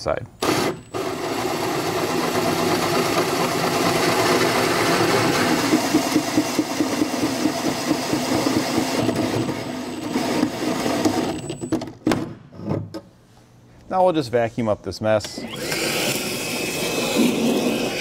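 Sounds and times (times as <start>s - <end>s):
power drill cutting through metal: 0.4s - 11.5s, 15.4s - 18.0s.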